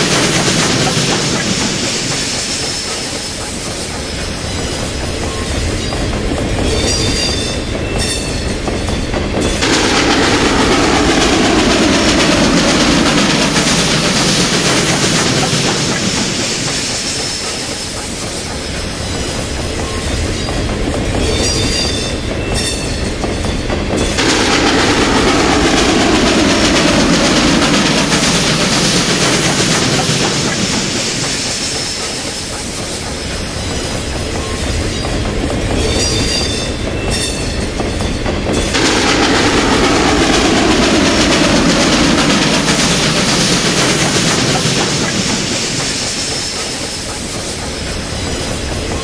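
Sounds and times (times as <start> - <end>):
freight train wheels rumbling: 0.0 - 49.0.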